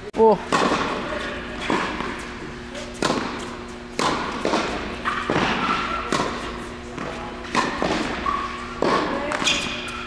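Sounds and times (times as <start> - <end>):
tennis balls struck and bouncing: 0.5 - 10.0.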